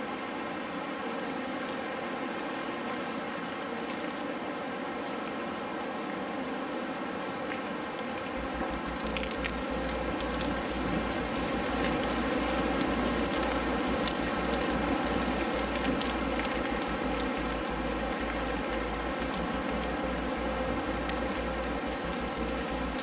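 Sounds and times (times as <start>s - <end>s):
rain hiss: 0.0s - 23.0s
rain drop ticks: 3.9s - 4.4s, 7.2s - 23.0s
faint low drone: 8.3s - 23.0s.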